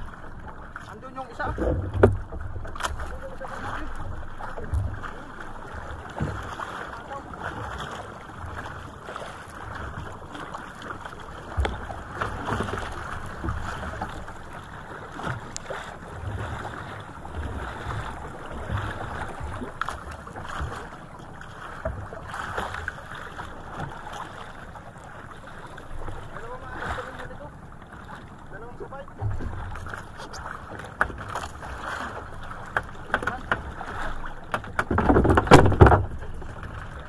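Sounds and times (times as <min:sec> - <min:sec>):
water splashing against boat: 0:00.0 - 0:37.0
knocks on boat: 0:01.4 - 0:03.1, 0:04.0 - 0:05.2, 0:06.0 - 0:07.8, 0:11.3 - 0:14.4, 0:29.1 - 0:30.1, 0:30.7 - 0:37.0.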